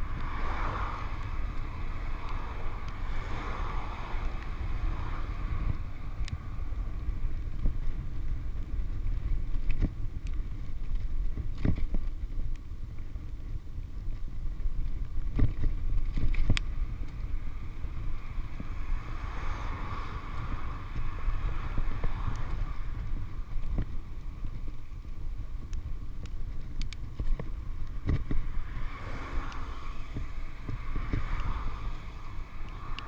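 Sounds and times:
bicycle road rumble: 0:00.0 - 0:33.0
wind rushing over microphone: 0:00.0 - 0:33.0.

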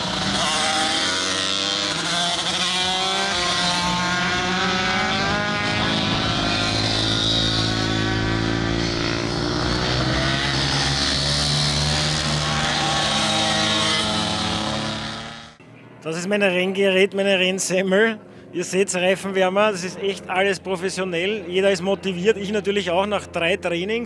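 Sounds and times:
small motorcycle engines revving: 0:00.0 - 0:15.6.

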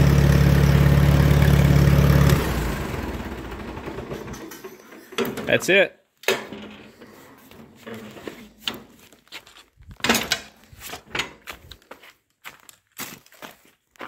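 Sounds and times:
clunks and knocks: 0:04.0 - 0:05.6, 0:06.2 - 0:09.0, 0:09.9 - 0:11.6.

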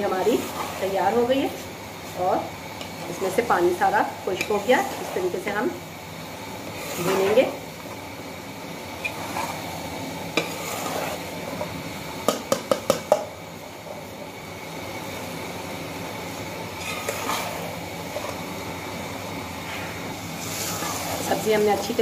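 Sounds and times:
spatula scraping metal pot: 0:00.0 - 0:01.4, 0:04.3 - 0:05.6, 0:06.6 - 0:07.6, 0:09.0 - 0:11.7, 0:16.7 - 0:18.5, 0:19.8 - 0:22.0
vegetables sizzling: 0:00.0 - 0:22.0.

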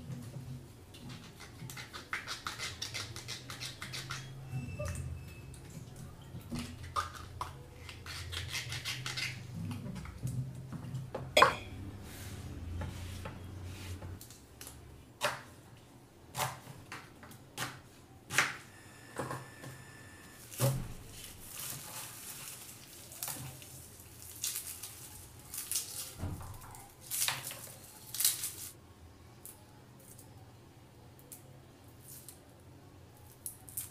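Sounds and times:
garlic being peeled: 0:01.0 - 0:04.4, 0:06.5 - 0:10.1, 0:20.4 - 0:26.4.

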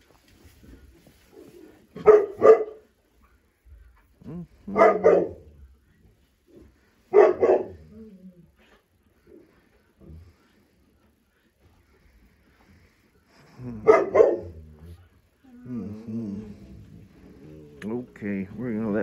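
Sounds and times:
puppy barking: 0:02.0 - 0:02.8, 0:04.7 - 0:05.5, 0:07.1 - 0:07.8, 0:13.8 - 0:14.6.

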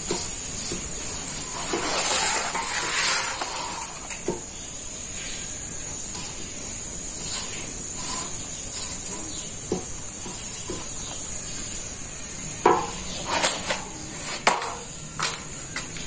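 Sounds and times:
wooden stick knocking on griddle: 0:00.0 - 0:04.6, 0:07.4 - 0:11.2, 0:12.6 - 0:13.0
flatbread sheet rustling: 0:00.0 - 0:04.7.

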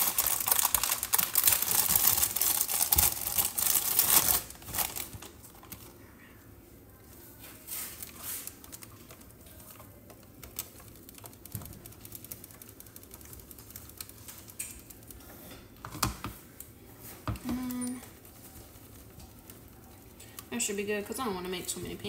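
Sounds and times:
plastic bag crinkling: 0:00.0 - 0:06.0.

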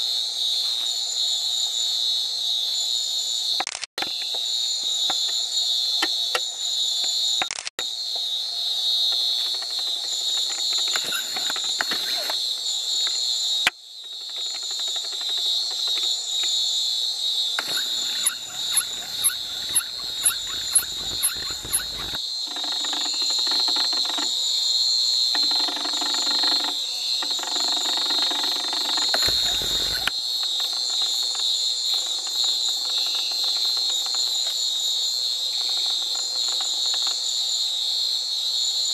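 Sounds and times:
insect chorus drone: 0:00.0 - 0:38.9
sharp high insect chirps: 0:00.5 - 0:37.7
lower pulsing insect buzz: 0:04.1 - 0:38.8.

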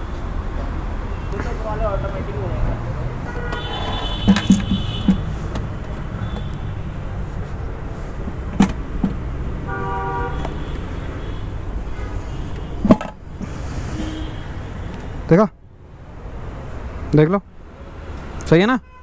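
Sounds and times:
road traffic rumble: 0:00.0 - 0:19.0
vehicle horn tooting: 0:03.3 - 0:05.2, 0:09.7 - 0:12.7
sharp knocks and clicks: 0:04.2 - 0:06.6, 0:08.5 - 0:09.3, 0:12.5 - 0:13.2.

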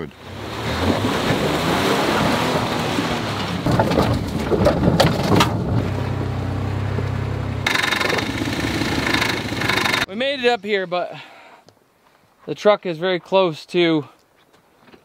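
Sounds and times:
truck engine running: 0:03.3 - 0:10.1
knocks and rattles: 0:03.4 - 0:06.4, 0:07.7 - 0:10.1.

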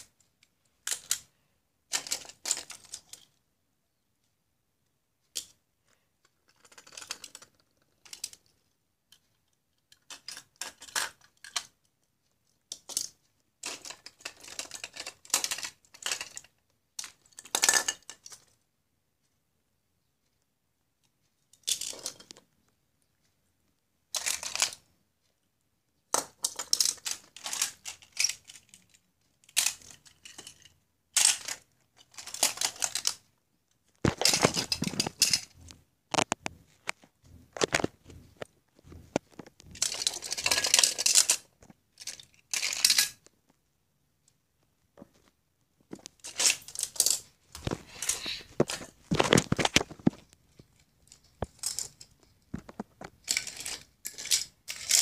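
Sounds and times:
toy cars clattering on wood floor: 0:06.5 - 0:09.2, 0:09.9 - 0:11.7, 0:12.7 - 0:18.5, 0:21.6 - 0:22.4, 0:24.1 - 0:24.8, 0:26.1 - 0:33.2, 0:34.0 - 0:43.3, 0:45.9 - 0:55.0.

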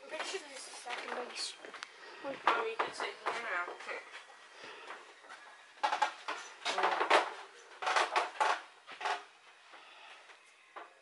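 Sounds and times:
sharp knocks and clatters: 0:05.8 - 0:09.3.

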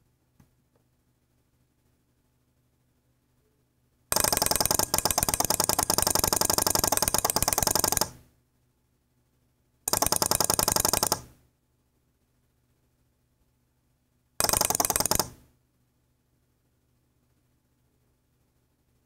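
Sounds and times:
rapid mechanical rattle: 0:04.1 - 0:08.1, 0:09.9 - 0:11.2, 0:14.4 - 0:15.4.

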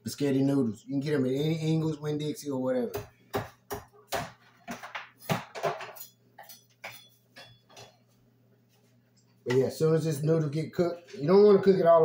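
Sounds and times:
kitchen utensils clinking: 0:04.6 - 0:08.1.

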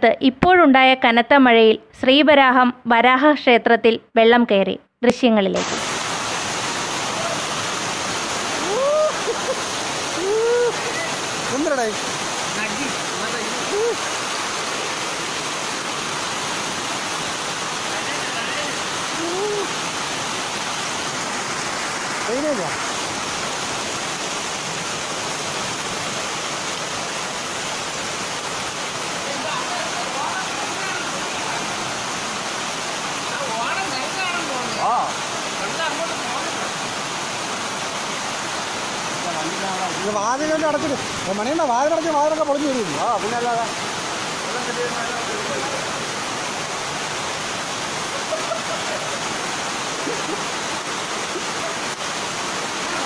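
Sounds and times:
floodwater rushing: 0:05.6 - 0:53.0.

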